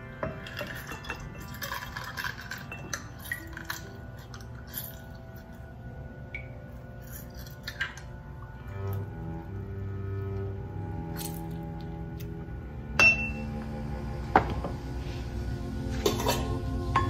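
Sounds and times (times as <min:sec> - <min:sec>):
soft background music: 0:00.0 - 0:17.0
juice dripping into glass: 0:00.3 - 0:08.5.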